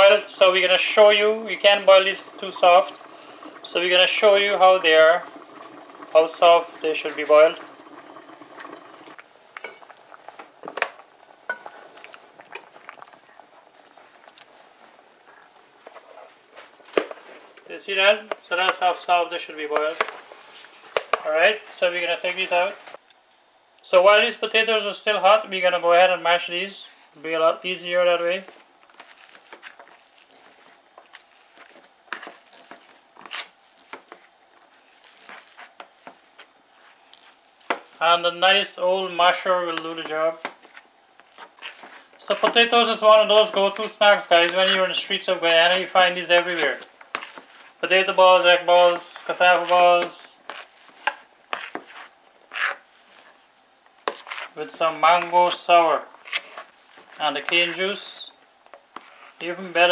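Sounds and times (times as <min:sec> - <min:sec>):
potato masher squishing potatoes: 0:00.0 - 0:09.2, 0:27.2 - 0:59.9.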